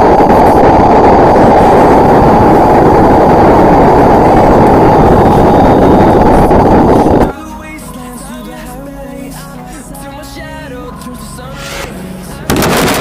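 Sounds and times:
muffled rumbling roar: 0.0s - 7.3s.

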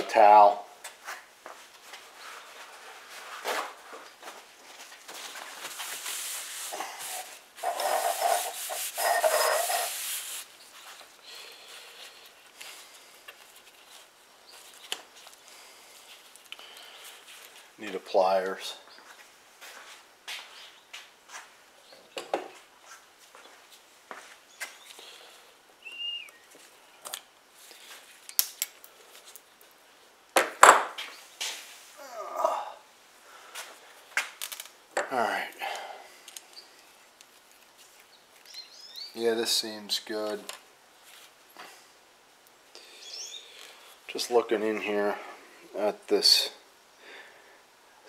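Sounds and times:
towel rubbing and wiping: 5.5s - 10.5s.

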